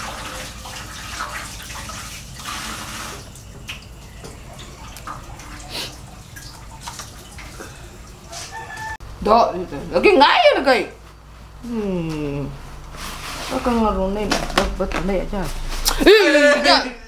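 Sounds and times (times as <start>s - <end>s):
vegetable leaves rustling: 11.7s - 16.5s.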